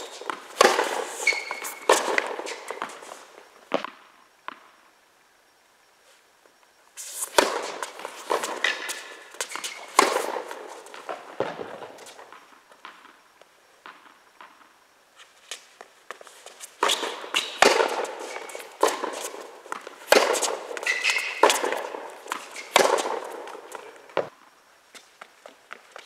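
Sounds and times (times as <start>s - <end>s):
tennis balls struck by rackets: 0.0s - 3.1s, 3.7s - 4.7s, 7.1s - 13.2s, 16.7s - 24.3s
tennis balls bouncing on court: 0.0s - 4.8s, 7.2s - 14.8s, 15.5s - 24.3s.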